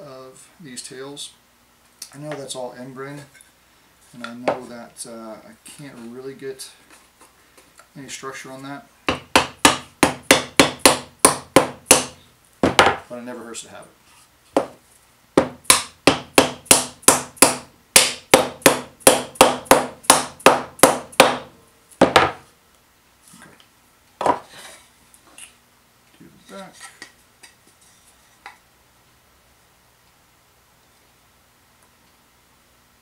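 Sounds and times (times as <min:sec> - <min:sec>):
mallet knocking on wood: 0:15.4 - 0:22.4.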